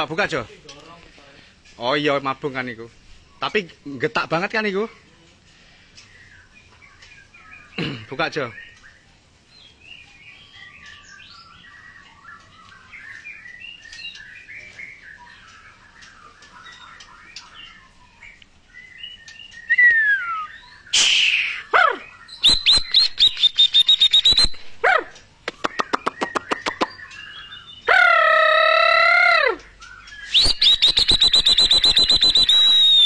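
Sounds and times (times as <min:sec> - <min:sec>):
caged birds chirping: 0:00.0 - 0:33.0
songbird whistles and note runs: 0:19.4 - 0:21.6, 0:22.4 - 0:24.7, 0:30.0 - 0:33.0.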